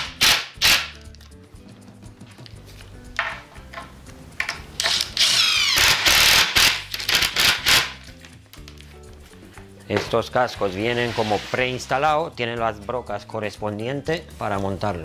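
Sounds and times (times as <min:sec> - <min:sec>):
cordless driver whining: 0:04.8 - 0:07.9.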